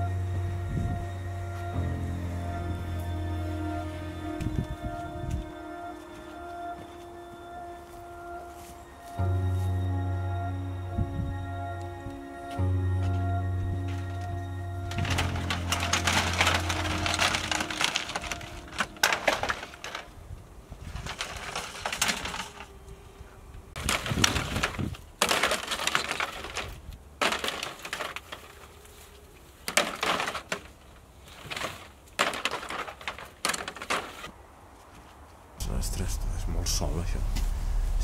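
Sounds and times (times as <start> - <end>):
plastic crates clattering and scraping: 13.8 - 22.8, 23.8 - 34.3.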